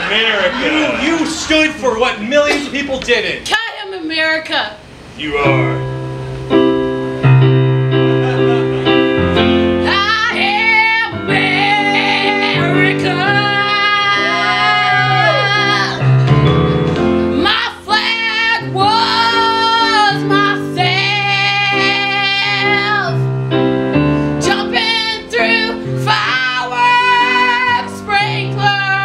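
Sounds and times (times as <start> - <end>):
held accompaniment chords: 5.0 - 29.0
woman singing slow song: 9.8 - 16.0, 17.3 - 23.3, 24.4 - 29.0.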